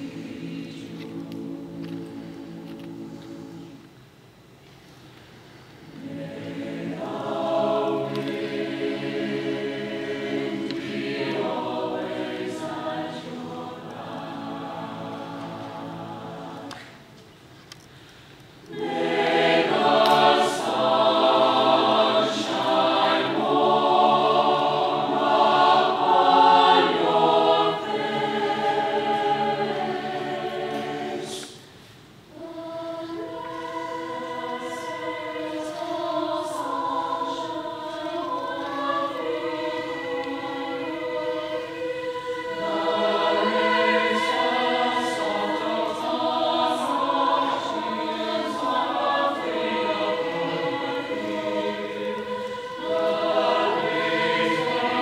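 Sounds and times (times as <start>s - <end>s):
mixed choir singing in parts: 0.0s - 3.9s, 5.8s - 17.2s, 18.6s - 55.0s.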